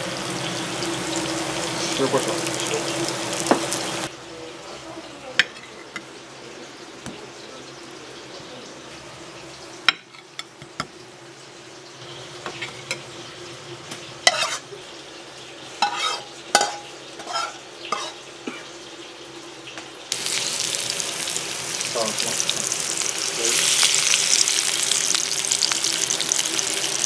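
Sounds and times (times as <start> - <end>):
food sizzling in hot pan: 0.0 - 4.1, 4.7 - 27.0
utensils clattering against pan: 14.3 - 14.7, 15.8 - 18.3.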